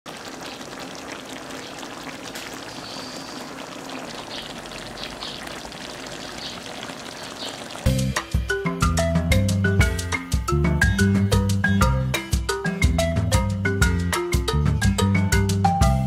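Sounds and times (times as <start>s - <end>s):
sauce bubbling and crackling: 0.1s - 8.0s
music: 7.9s - 16.0s.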